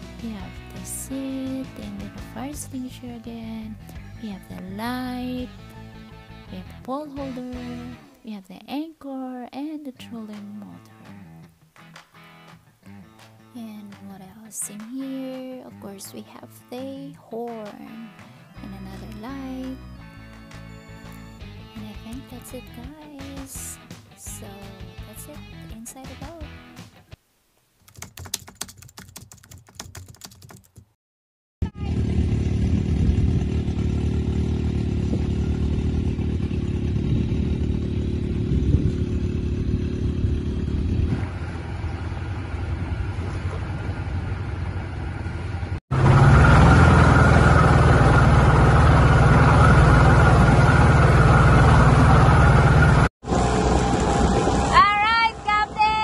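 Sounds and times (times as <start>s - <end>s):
low engine rumble: 31.6s - 56.0s
outboard motor running at speed: 31.6s - 56.0s
water rushing in boat wake: 46.1s - 55.5s.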